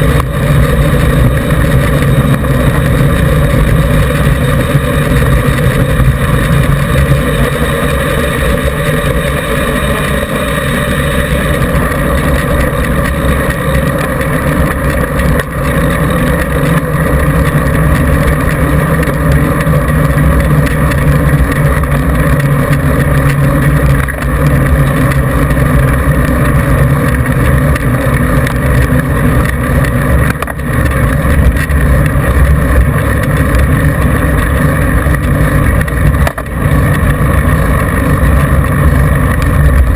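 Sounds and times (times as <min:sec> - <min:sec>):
bike tyre rumbling on gravel: 0:00.0 - 0:39.9.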